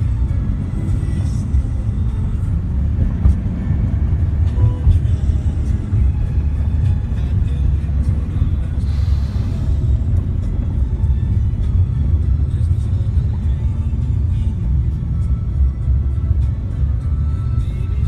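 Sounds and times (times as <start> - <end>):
heavy trucks rumbling past: 0.0 - 18.0.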